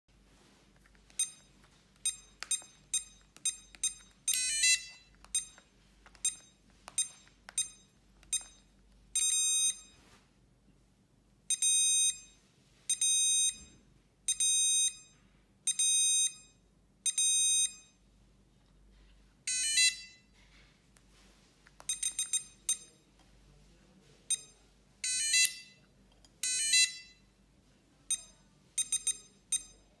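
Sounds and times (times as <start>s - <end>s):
longer electronic beeps: 1.2s - 5.6s, 21.9s - 23.1s, 28.1s - 29.9s
short electronic beeps: 28.1s - 29.9s.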